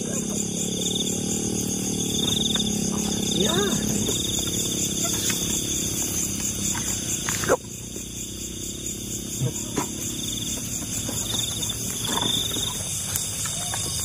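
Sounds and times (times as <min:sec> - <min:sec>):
crickets trilling: 0:00.0 - 0:14.0.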